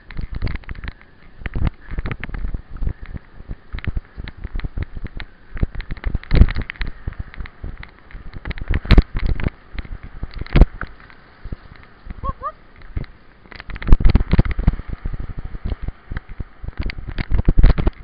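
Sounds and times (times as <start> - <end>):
bike thumping over bumps: 0.0 - 12.2
mountain bike rattling on trail: 0.0 - 18.0.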